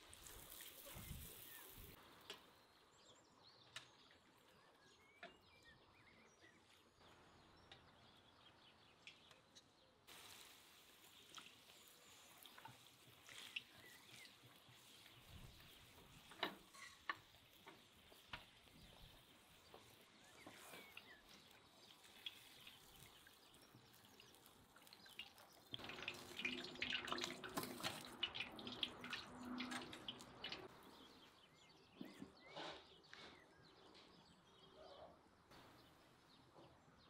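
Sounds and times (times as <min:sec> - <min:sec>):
hot oil ladled: 0:00.0 - 0:02.0, 0:10.1 - 0:31.1
food deep-frying in oil: 0:00.0 - 0:02.6, 0:10.1 - 0:31.3.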